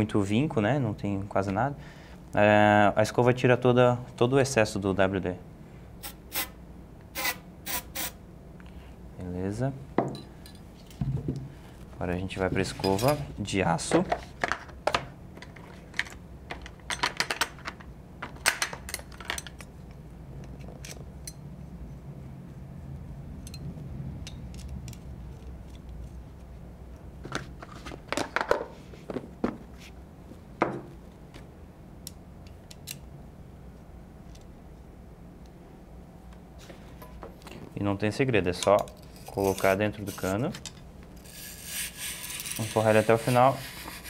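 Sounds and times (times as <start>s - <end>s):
metal tools clicking and clinking: 23.4s - 25.8s.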